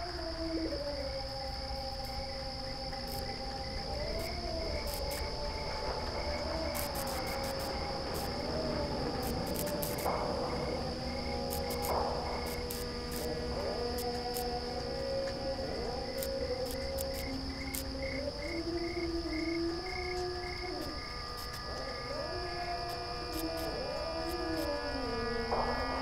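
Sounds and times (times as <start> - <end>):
crickets chirring: 0.0 - 26.0
faint ticks: 9.2 - 10.3, 16.2 - 17.9
slow gliding sustained tones: 17.3 - 26.0.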